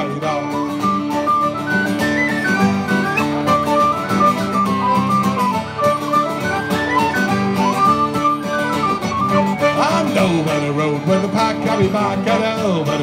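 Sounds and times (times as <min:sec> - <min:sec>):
accordion: 0:00.0 - 0:13.0
fiddle: 0:00.0 - 0:13.0
strummed acoustic guitar: 0:00.0 - 0:13.0
tin whistle melody: 0:00.5 - 0:10.6.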